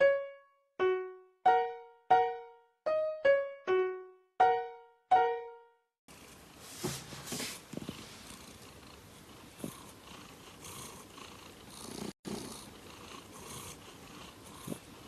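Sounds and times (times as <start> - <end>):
cat purring: 7.6 - 15.0.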